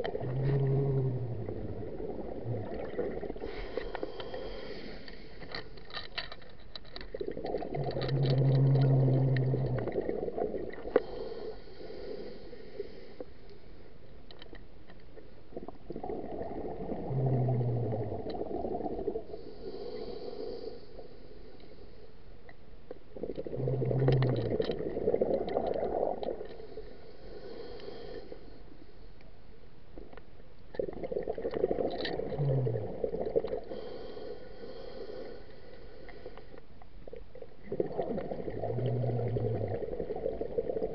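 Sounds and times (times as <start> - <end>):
bubbling underwater exhalations: 0.0 - 3.6, 7.2 - 11.0, 15.5 - 19.3, 23.2 - 26.5, 30.8 - 33.8, 37.3 - 40.9
regulator inhalation hiss: 3.4 - 5.5, 10.9 - 13.4, 19.3 - 22.1, 26.7 - 28.6, 33.7 - 36.6.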